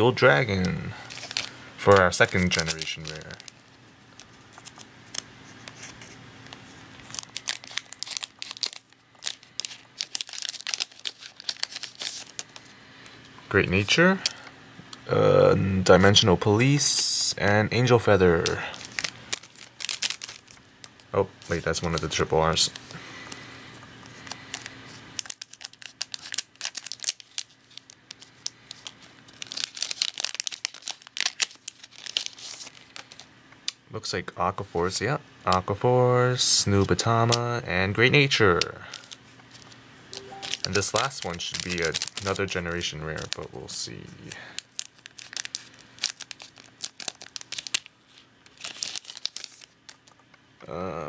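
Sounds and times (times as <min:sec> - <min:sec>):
foil pack crinkling and tearing: 0:00.0 - 0:12.7, 0:17.8 - 0:23.4, 0:24.0 - 0:33.8, 0:38.5 - 0:50.2.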